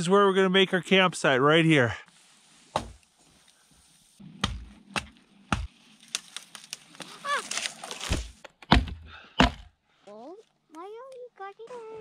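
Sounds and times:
sharp branch snaps: 0:04.4 - 0:08.8
dry wood cracking and knocking: 0:04.4 - 0:09.7.

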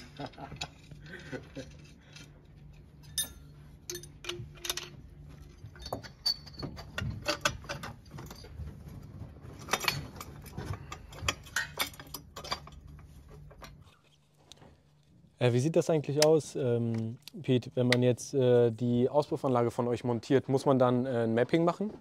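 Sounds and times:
metal pipes clinking and knocking: 0:00.0 - 0:14.0
steady low hum: 0:00.0 - 0:22.0.

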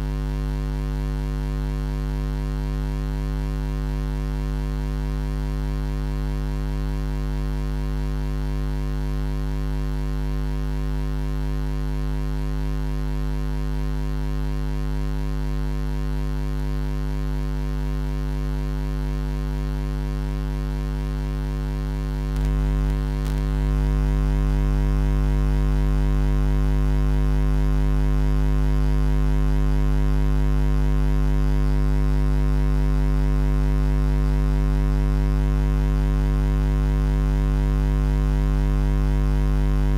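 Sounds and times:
electrical mains hum: 0:20.5 - 0:25.1.

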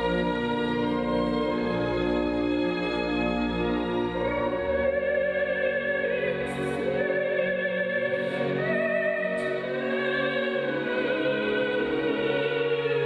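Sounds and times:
operatic voice singing: 0:04.2 - 0:13.0.

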